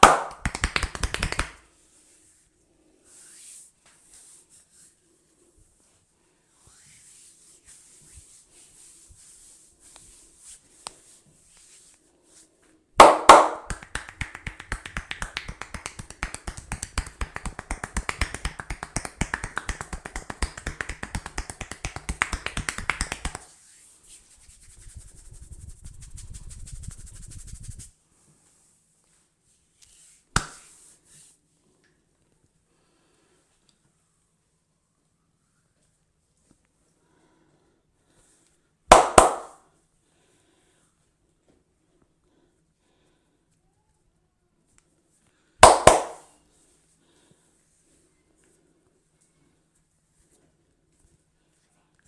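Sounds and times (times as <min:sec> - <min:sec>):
hands rubbing: 0:00.0 - 0:01.6, 0:13.0 - 0:27.9, 0:29.8 - 0:31.3, 0:38.9 - 0:39.6, 0:45.6 - 0:46.3
hands striking head: 0:00.0 - 0:01.6, 0:13.0 - 0:23.4, 0:30.4 - 0:30.6, 0:38.9 - 0:39.6, 0:45.6 - 0:46.3.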